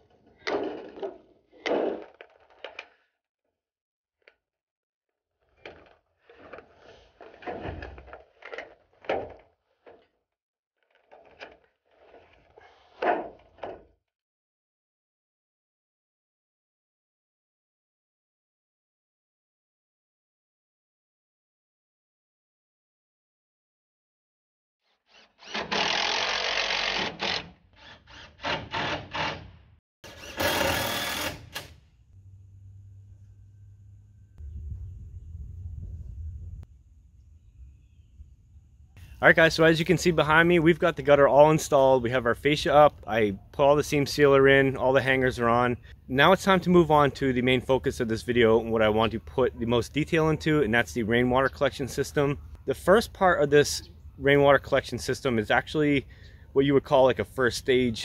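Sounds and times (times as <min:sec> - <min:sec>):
power drill driving screws: 0:25.0 - 0:31.8
low steady hum: 0:32.1 - 0:39.0.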